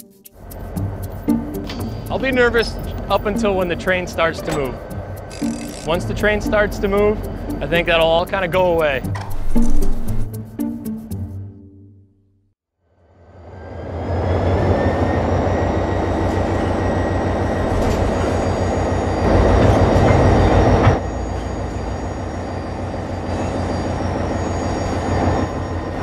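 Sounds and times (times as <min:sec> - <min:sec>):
freight train rumbling: 0:00.4 - 0:09.2, 0:13.4 - 0:26.0
high-pitched squeal: 0:01.7 - 0:08.4, 0:13.4 - 0:26.0.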